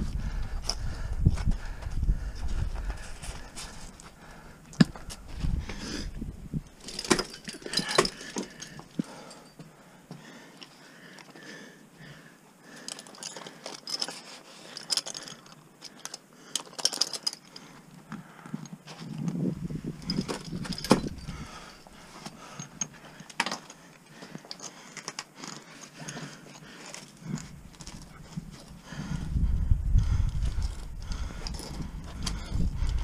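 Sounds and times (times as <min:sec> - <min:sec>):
climbing hardware clinking: 0:06.6 - 0:09.6, 0:12.8 - 0:17.8, 0:18.5 - 0:28.8, 0:30.2 - 0:33.0.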